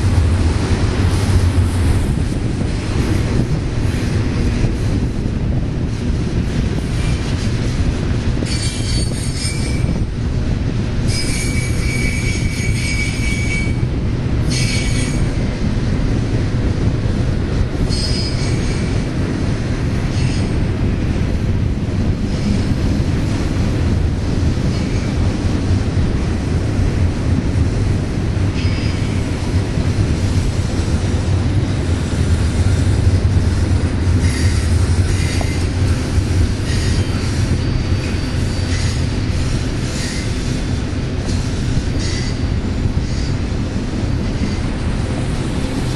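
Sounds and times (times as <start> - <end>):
freight train rumbling: 0.0 - 45.9
wheel squeal: 8.4 - 10.0, 11.1 - 13.8, 14.5 - 15.3, 17.9 - 18.9, 36.6 - 40.5.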